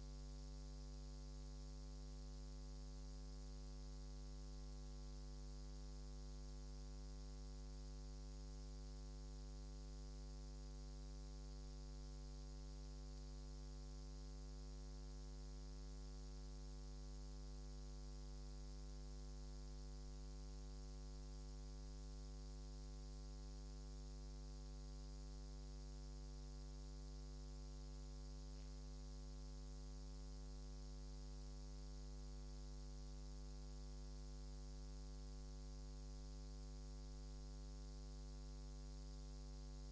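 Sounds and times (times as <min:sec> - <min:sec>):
electrical mains hum: 0:25.0 - 0:34.0
faint hiss: 0:27.8 - 0:29.0.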